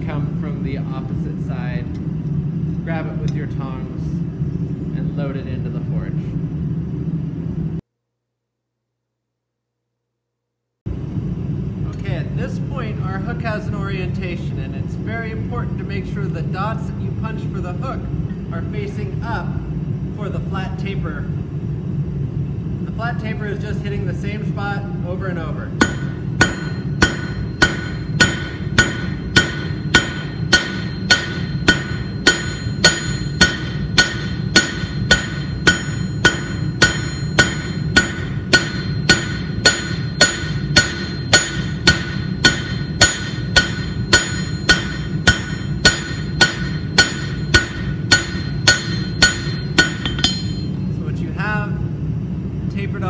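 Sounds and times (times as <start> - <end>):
hammer striking steel on anvil: 25.8 - 50.9.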